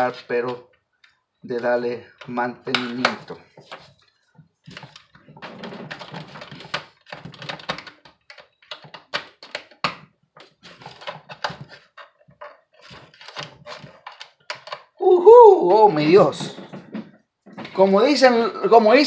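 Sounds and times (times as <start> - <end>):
small parts being handled: 2.2 - 15.0.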